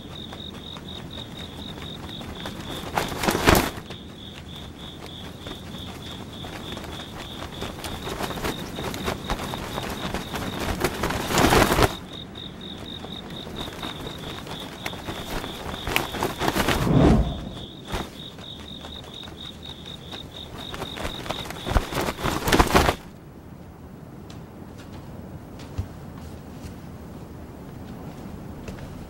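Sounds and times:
insect chirping trill: 0.0s - 23.0s
loud rushing swishing noises: 16.5s - 18.0s.

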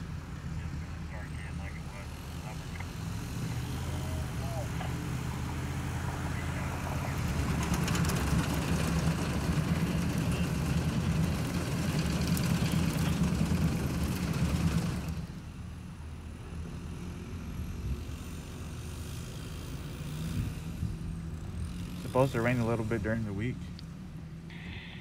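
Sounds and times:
pickup truck engine running: 1.6s - 15.7s.

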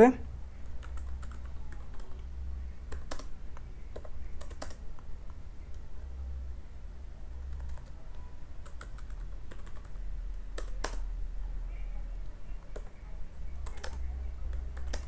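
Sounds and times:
low steady hum: 0.0s - 15.0s
computer keyboard typing: 0.6s - 5.1s, 7.4s - 11.1s, 12.6s - 15.0s.

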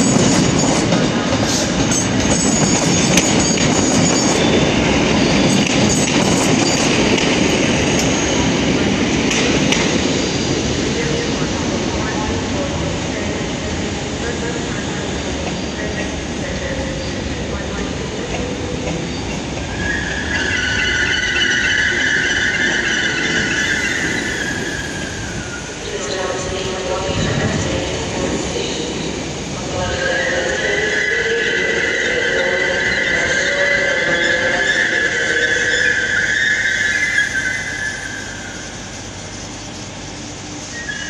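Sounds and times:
low rumble of train running: 0.0s - 41.0s
train wheels squealing: 1.4s - 8.6s, 19.0s - 25.7s, 30.1s - 38.8s.

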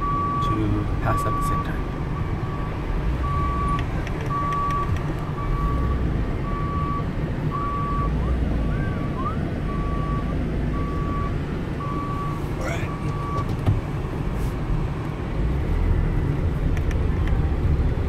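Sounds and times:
reversing alarm beeping: 0.0s - 8.2s, 9.0s - 13.5s
engine and road rumble: 0.0s - 18.0s.

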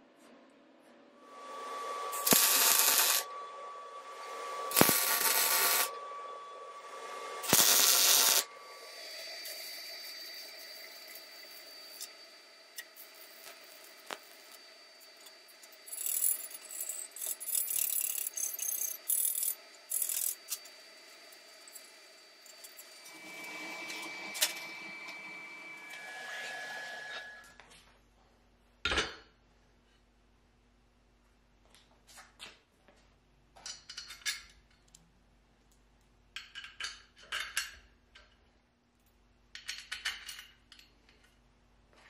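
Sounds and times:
welding arc crackling: 1.4s - 3.3s, 4.1s - 5.9s, 7.3s - 24.6s
scraping on steel: 22.5s - 27.5s.

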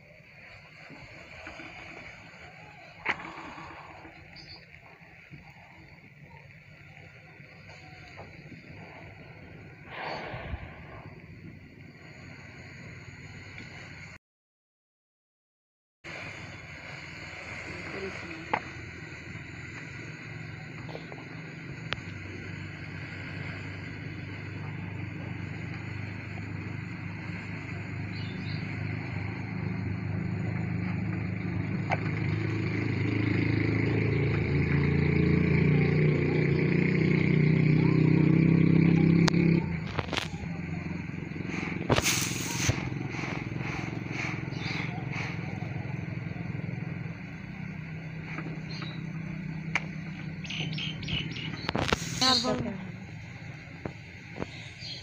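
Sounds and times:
engine humming: 0.0s - 14.2s, 16.1s - 55.0s
short high bird chirps: 50.4s - 52.5s.

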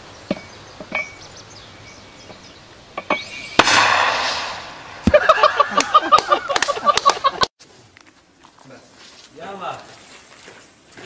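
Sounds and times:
rushing noise: 3.2s - 5.7s
mortar bang: 3.5s - 5.4s.

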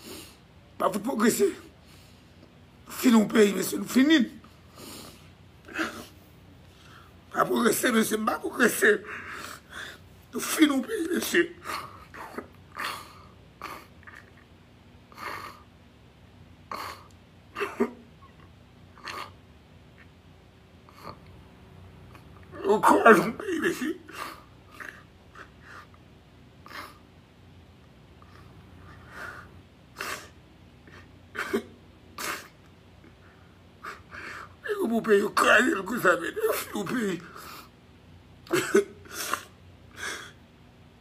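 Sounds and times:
man sobbing and sniffing: 0.0s - 14.4s, 15.1s - 15.7s, 16.7s - 18.4s, 22.1s - 26.0s, 26.6s - 27.1s, 28.2s - 37.8s, 38.5s - 40.4s
faint room noise: 0.0s - 41.0s.

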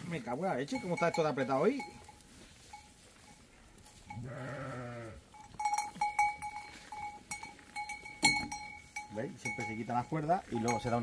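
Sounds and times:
sheep bells clanking: 0.1s - 11.0s
sheep bleating: 4.2s - 5.2s.

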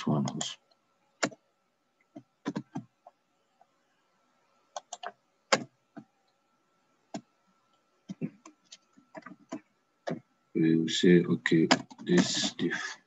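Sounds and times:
faint steady hum: 0.0s - 13.0s
computer keyboard keystrokes: 4.7s - 5.7s, 11.7s - 12.4s.

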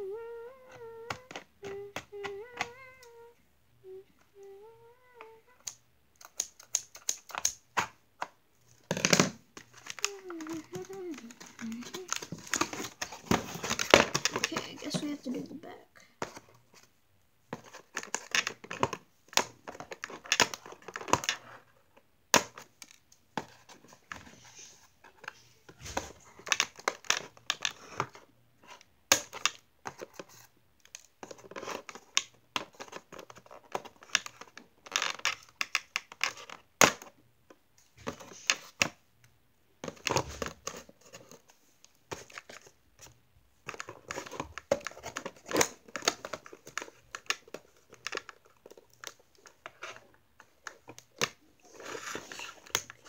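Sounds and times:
cardboard and plastic tearing: 8.8s - 15.0s, 43.7s - 53.0s.

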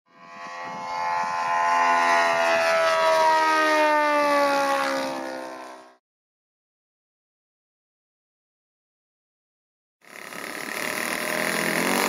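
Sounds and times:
model airplane engine passing: 0.1s - 6.0s, 10.0s - 12.0s.

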